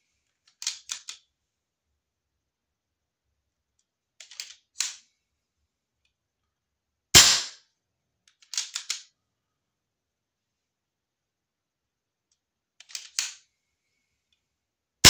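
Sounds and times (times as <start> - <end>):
air gun shot: 7.2 - 7.5.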